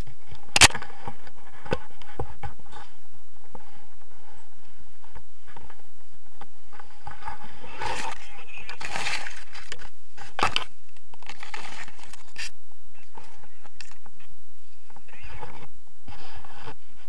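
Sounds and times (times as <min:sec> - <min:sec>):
microphone handling noise: 0:00.0 - 0:17.0.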